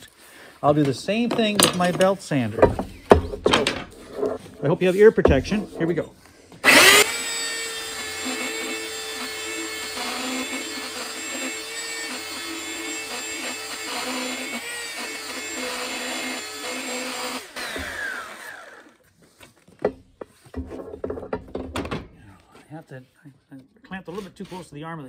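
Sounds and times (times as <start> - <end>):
belt sander whining: 6.6 - 19.0
motor winding down: 6.6 - 19.0.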